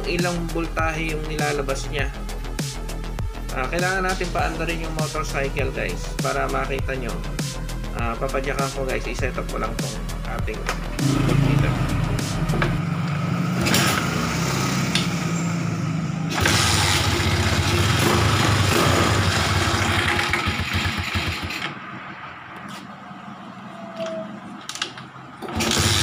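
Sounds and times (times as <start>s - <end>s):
motorcycle engine idling and revving: 10.6s - 22.8s.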